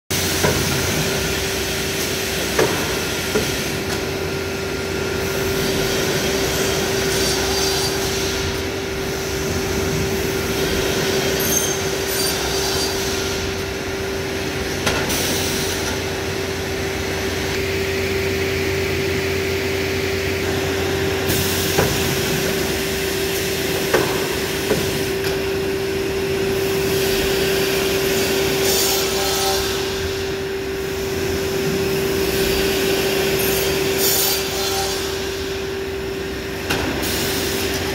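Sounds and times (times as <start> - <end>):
panel saw machine hum: 0.1 - 37.9.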